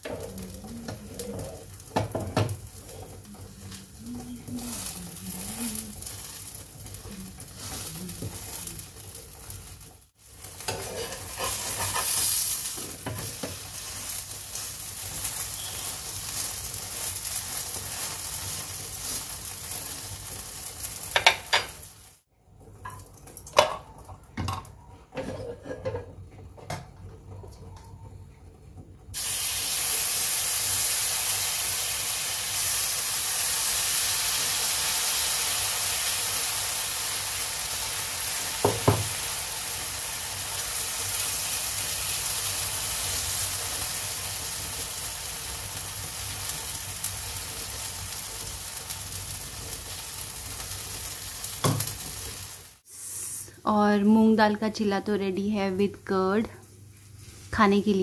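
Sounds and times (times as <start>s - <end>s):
batter sizzling on a pan: 0.0s - 24.1s, 29.1s - 53.5s
spatula and tongs scraping: 10.5s - 14.8s.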